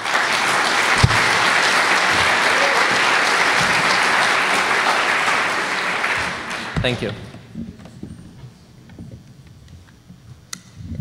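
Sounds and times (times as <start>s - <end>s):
audience applauding: 0.0s - 7.3s
low thump: 1.0s - 1.4s.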